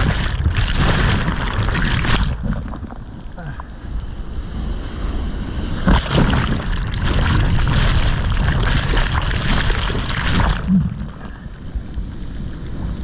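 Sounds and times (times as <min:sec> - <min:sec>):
gurgling whitewater rushing: 0:00.0 - 0:03.8, 0:05.7 - 0:13.0
wave crashing: 0:04.9 - 0:11.6.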